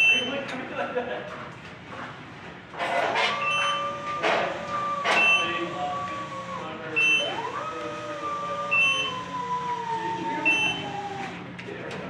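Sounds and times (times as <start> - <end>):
lift motion alarm beeping: 0.0 - 0.4, 3.3 - 11.3
lift drive motor whine: 2.8 - 12.0.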